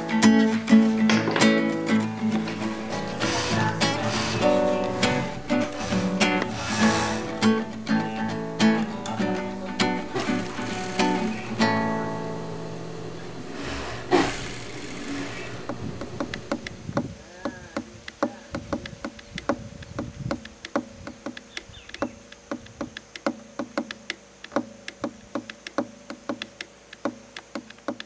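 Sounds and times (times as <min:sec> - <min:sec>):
buzzing hum: 0:00.0 - 0:17.2
sharp clicks: 0:14.1 - 0:28.0.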